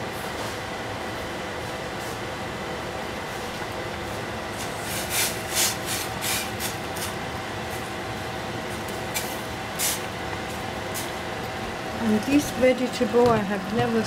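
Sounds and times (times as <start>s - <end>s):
pasta boiling with rushing hiss: 0.0s - 12.7s.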